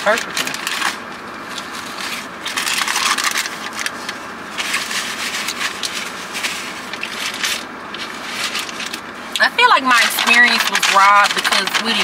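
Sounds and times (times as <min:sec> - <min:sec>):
paper wrapper rustling and crinkling: 0:00.1 - 0:09.1.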